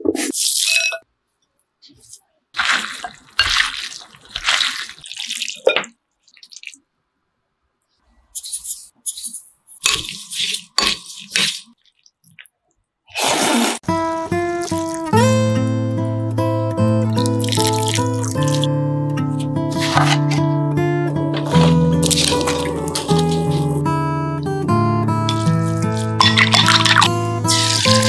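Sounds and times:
noodles tossed wetly in sauce: 0:02.6 - 0:05.7, 0:13.9 - 0:15.2, 0:21.3 - 0:23.8, 0:25.3 - 0:28.0.

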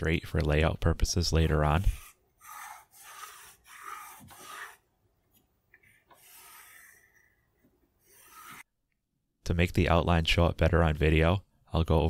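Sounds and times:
pencil scratching along ruler: 0:01.4 - 0:08.7.

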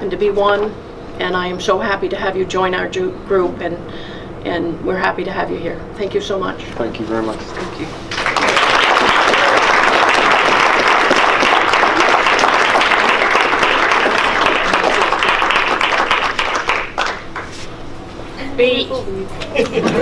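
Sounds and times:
audience applauding: 0:08.1 - 0:17.6.

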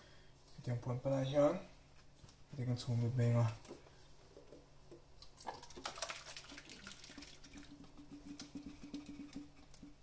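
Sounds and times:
small liquid plops: 0:04.9 - 0:10.0
liquid pouring and splashing: 0:05.2 - 0:10.0.

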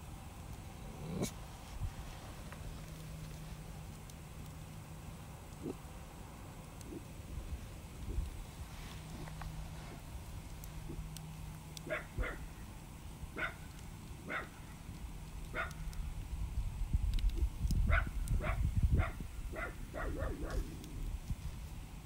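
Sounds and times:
campfire crackling: 0:00.0 - 0:22.0
dogs barking: 0:11.8 - 0:12.6, 0:13.4 - 0:14.7, 0:15.5 - 0:15.9, 0:17.9 - 0:20.7.

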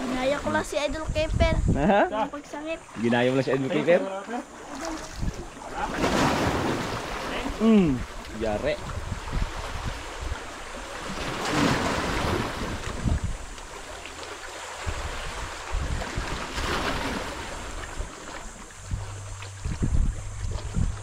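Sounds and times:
wind rumbling on microphone: 0:00.0 - 0:02.1, 0:04.7 - 0:21.0
sea waves washing in: 0:02.4 - 0:21.0.

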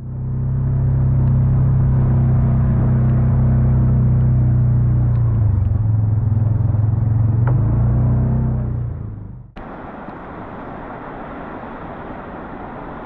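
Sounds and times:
vehicle engine running: 0:00.0 - 0:09.8
rain hissing: 0:09.6 - 0:13.0.

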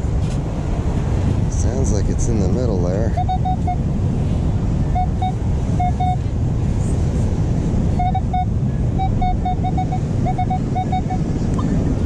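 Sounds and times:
wind: 0:00.0 - 0:12.0
metal detector short beeps: 0:03.2 - 0:03.8, 0:05.0 - 0:06.2, 0:08.0 - 0:11.2.

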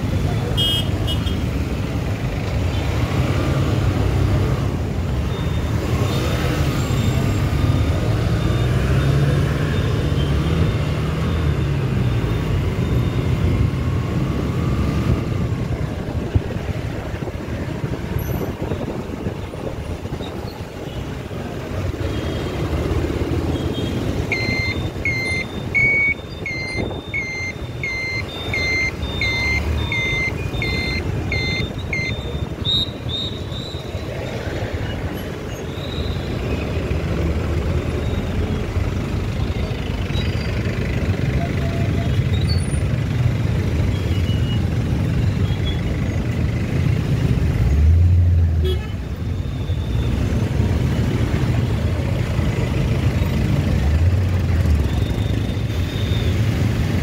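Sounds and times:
vehicle engine and road rumble: 0:00.0 - 0:57.0
short high electronic beeps: 0:24.4 - 0:33.4.

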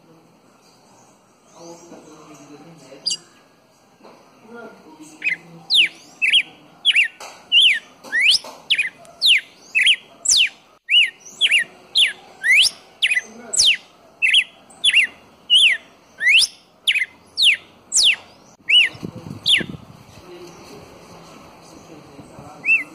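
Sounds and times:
bird singing whistled notes: 0:01.3 - 0:03.6, 0:05.0 - 0:19.8, 0:22.6 - 0:22.9.

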